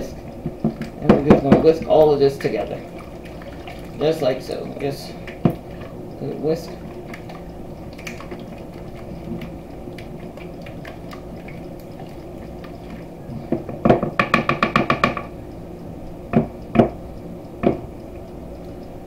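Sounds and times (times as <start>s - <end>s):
whisk beating batter in a bowl: 1.0s - 13.1s.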